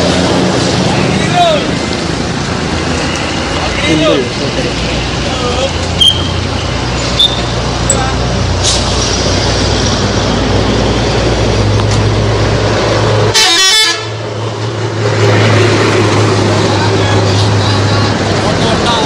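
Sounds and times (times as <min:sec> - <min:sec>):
bus diesel engine humming: 0:00.0 - 0:19.0
bus horn tooting: 0:13.3 - 0:14.2.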